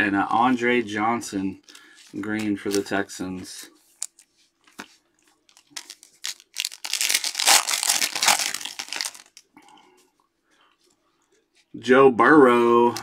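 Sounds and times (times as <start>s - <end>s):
foil wrapper crinkling and tearing: 4.0s - 9.5s.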